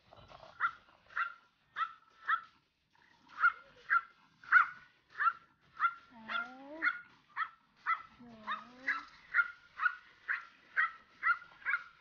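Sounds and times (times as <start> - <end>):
puppy yapping: 3.3 - 12.0.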